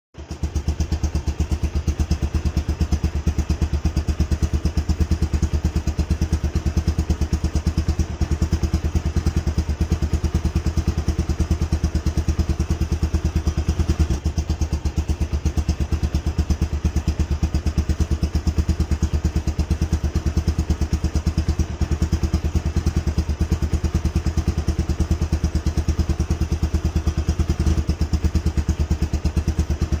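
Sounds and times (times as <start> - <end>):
engine idling: 0.2 - 30.0.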